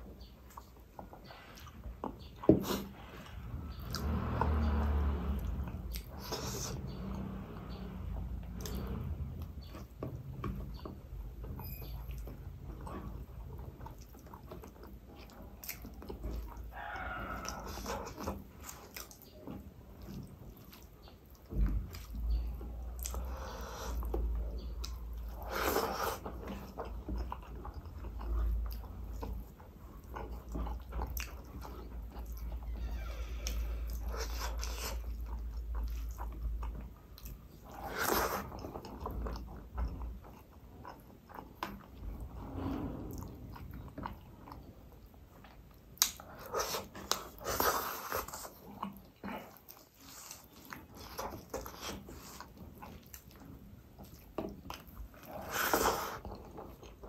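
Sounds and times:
person chewing: 12.1 - 32.6, 33.4 - 42.3, 43.1 - 57.0.

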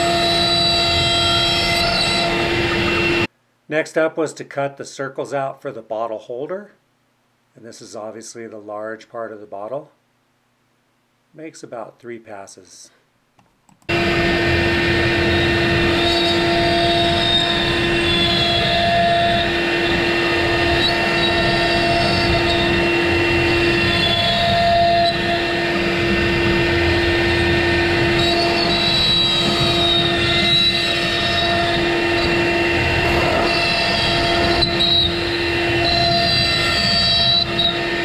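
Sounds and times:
router bit cutting wood: 0.0 - 3.3, 13.9 - 38.0
router spindle whine: 0.0 - 3.3, 13.9 - 38.0
faint high rising tones: 13.9 - 38.0.

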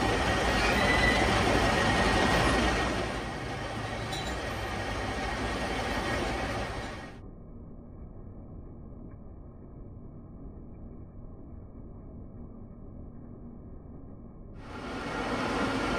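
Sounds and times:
metal lathe running: 0.0 - 7.2, 14.6 - 15.9.

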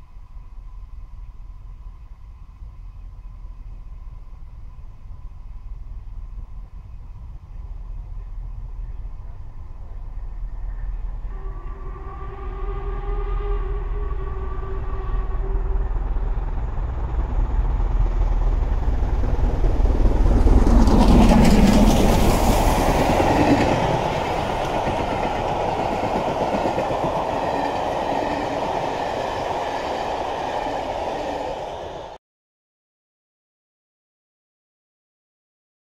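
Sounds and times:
steam locomotives passing: 0.0 - 32.2
steam whistle: 11.3 - 16.4, 23.2 - 32.2
train wheels rolling on rails: 16.2 - 32.2.

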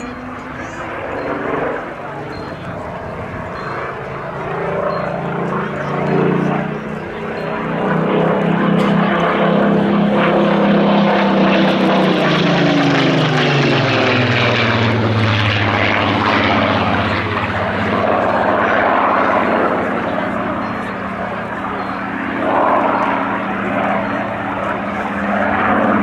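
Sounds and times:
propeller aircraft engine roaring: 0.0 - 26.0.

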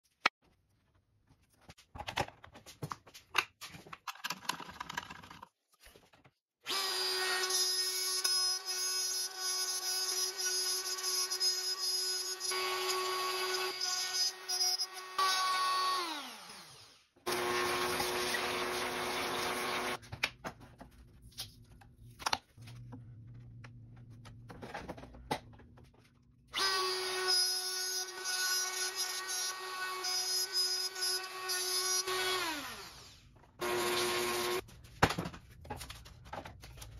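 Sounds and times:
router motor whining: 12.0 - 20.0, 26.6 - 34.6.

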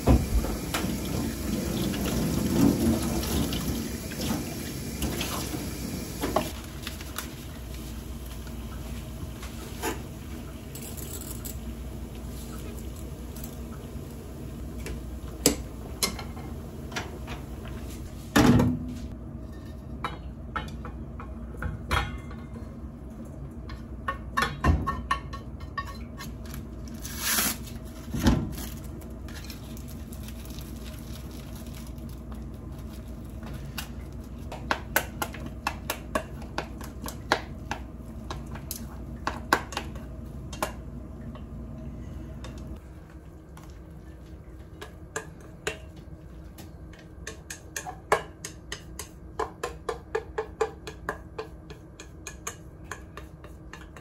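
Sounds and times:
steady low hum: 25.2 - 54.0.

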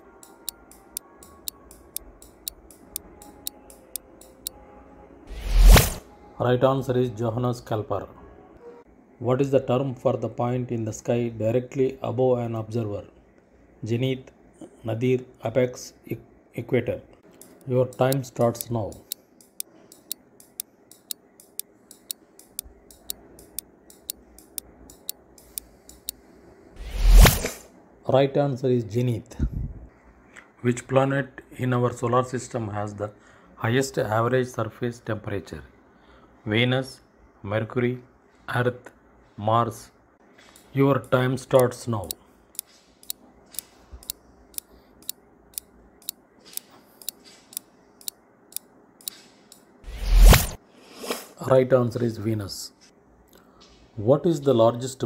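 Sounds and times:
clock ticking: 0.1 - 4.6, 17.3 - 26.2, 40.6 - 46.2.

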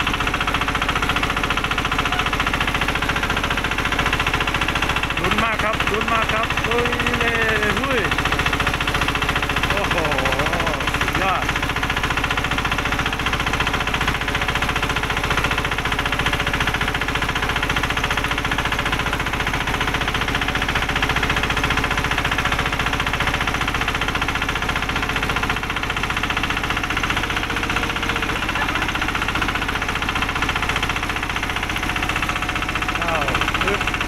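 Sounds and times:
vehicle engine pulsing: 0.0 - 19.6, 20.3 - 34.0.

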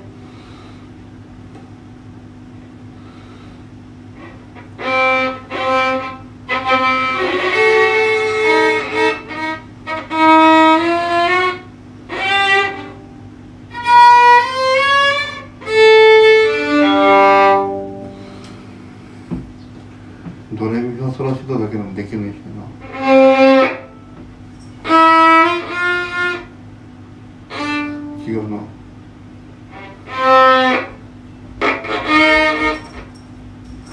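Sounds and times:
faint steady hum: 0.0 - 33.9
solo violin melody: 4.2 - 13.1, 13.7 - 18.4, 22.8 - 24.0, 24.8 - 26.5, 27.4 - 28.4, 29.7 - 31.0, 31.6 - 32.9.

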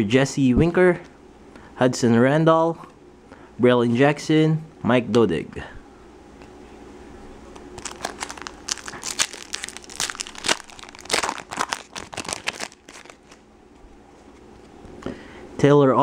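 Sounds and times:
plastic wrapper tearing and crinkling: 7.7 - 13.4.

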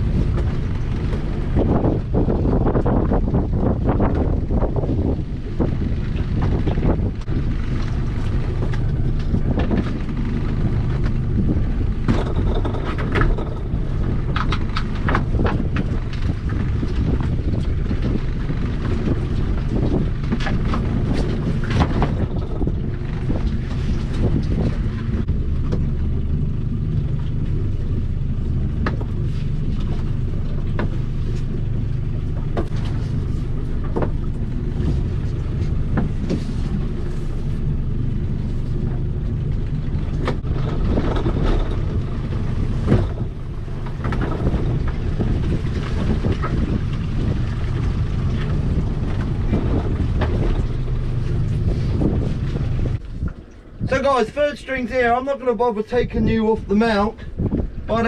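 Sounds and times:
outboard motor running: 0.0 - 58.0
wind on microphone: 0.0 - 58.0.

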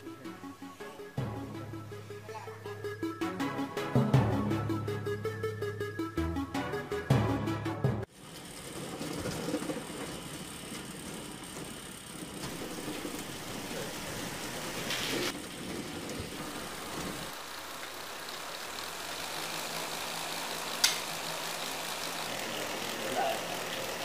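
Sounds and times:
small electric motor running: 16.4 - 24.0.

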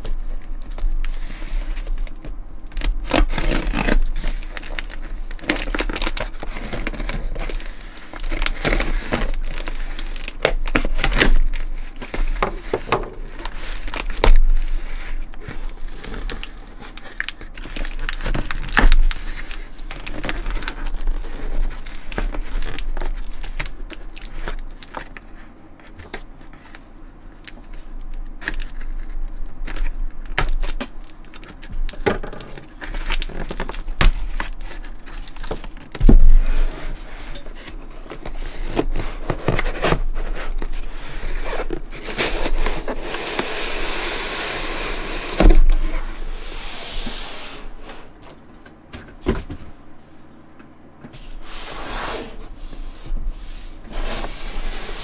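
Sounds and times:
cardboard flaps scraping and crackling: 0.0 - 26.8, 28.4 - 49.8, 51.1 - 55.0
box sliding against cardboard: 38.3 - 48.2, 51.2 - 55.0.

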